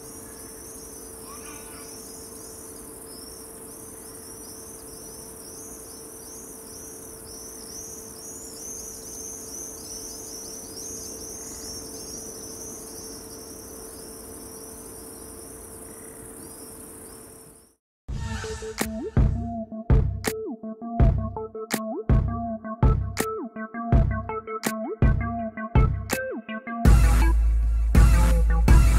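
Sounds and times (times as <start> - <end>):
crickets chirping: 0.0 - 17.8
faint hum: 0.0 - 17.8
high-pitched hiss: 0.0 - 19.0.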